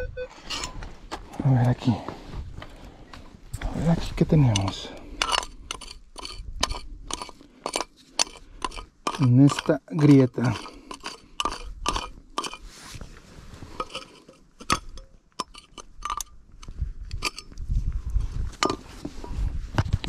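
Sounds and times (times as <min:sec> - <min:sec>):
metal tools scraping on rock: 0:00.4 - 0:00.8, 0:04.1 - 0:12.7, 0:13.7 - 0:16.4, 0:17.1 - 0:17.6.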